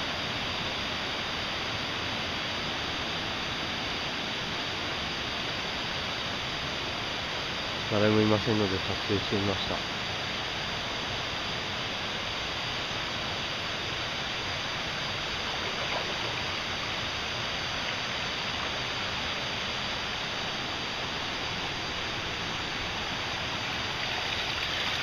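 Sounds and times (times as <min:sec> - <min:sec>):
running water: 0:13.3 - 0:25.0.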